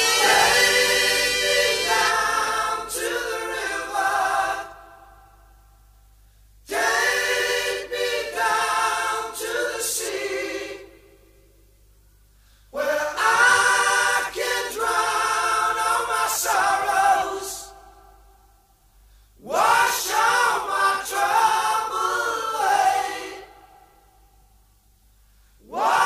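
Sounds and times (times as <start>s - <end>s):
choir singing unaccompanied: 0.0s - 5.3s, 6.7s - 11.2s, 12.8s - 18.2s, 19.4s - 24.1s, 25.6s - 26.0s.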